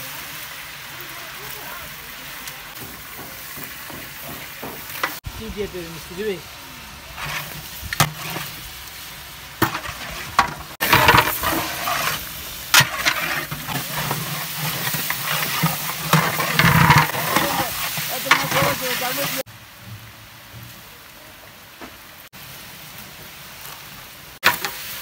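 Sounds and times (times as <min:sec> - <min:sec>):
meat sizzling in a pot: 0:00.0 - 0:25.0
metal spatula scraping a pot: 0:07.2 - 0:08.6, 0:09.6 - 0:19.4.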